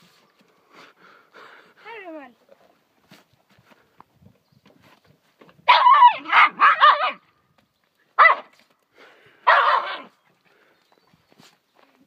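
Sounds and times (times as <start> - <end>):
small dog barking: 5.7 - 7.2, 8.2 - 8.5, 9.4 - 10.1.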